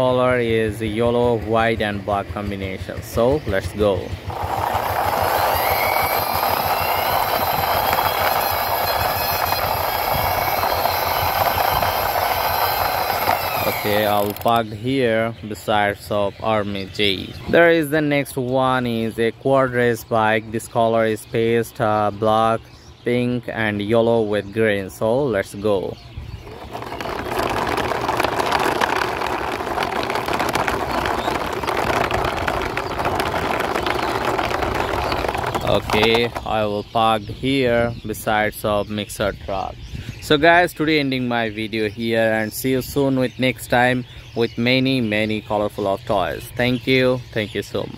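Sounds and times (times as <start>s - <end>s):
toy truck wheels rattling on concrete: 1.6s - 14.7s, 26.4s - 36.8s.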